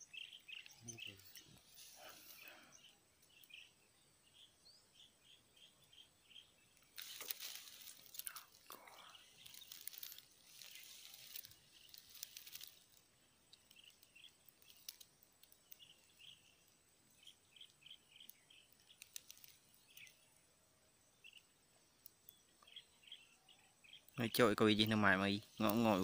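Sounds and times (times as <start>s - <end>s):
soft rustle: 1.0s - 3.4s, 6.8s - 20.2s.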